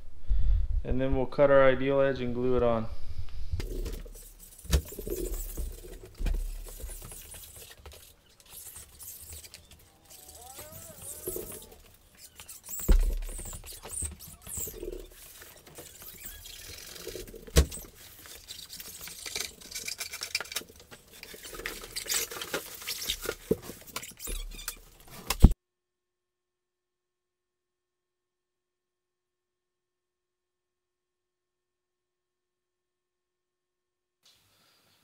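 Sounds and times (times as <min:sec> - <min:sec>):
tools scraping and rustling: 0:03.6 - 0:25.6.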